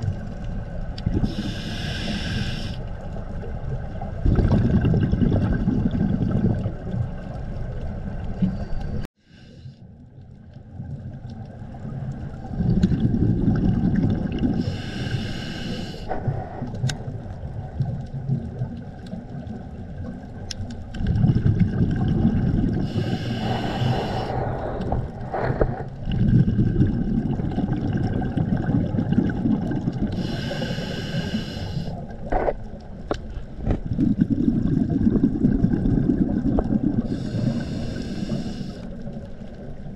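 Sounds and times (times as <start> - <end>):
underwater exhaled bubbles rumbling: 0.0 - 9.1, 10.3 - 15.4, 16.1 - 39.9
regulator whistling hiss on inhale: 1.3 - 2.9, 14.6 - 16.2, 22.8 - 24.8, 30.2 - 32.0, 37.1 - 38.9.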